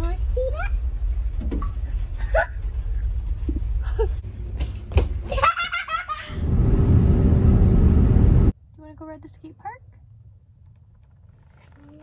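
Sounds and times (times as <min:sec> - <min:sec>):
young child laughing: 0:05.2 - 0:06.4
road noise inside car: 0:06.4 - 0:08.6.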